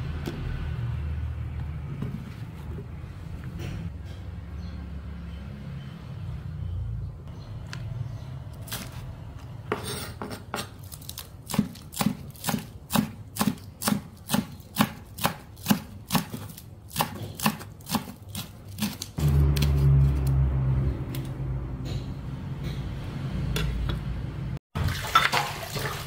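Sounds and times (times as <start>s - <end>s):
knife chopping on wooden board: 11.5s - 19.8s.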